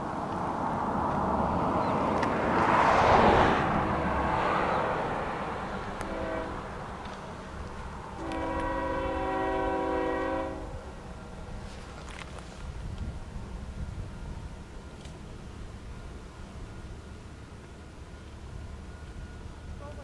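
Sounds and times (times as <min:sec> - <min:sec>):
rushing noise: 0:00.0 - 0:17.4
locomotive air horn: 0:06.0 - 0:06.9, 0:08.1 - 0:10.8.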